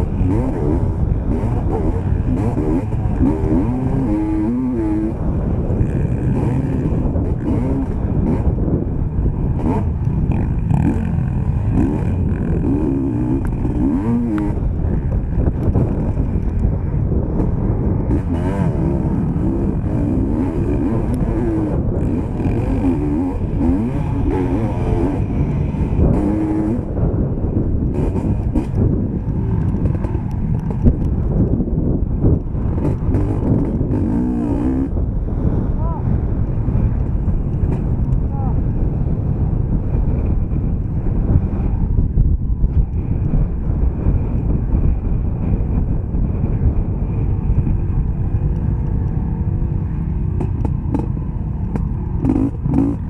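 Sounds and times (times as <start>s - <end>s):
motocross bike engine revving: 0.0s - 27.2s, 27.8s - 31.5s, 32.6s - 35.0s, 50.4s - 53.0s.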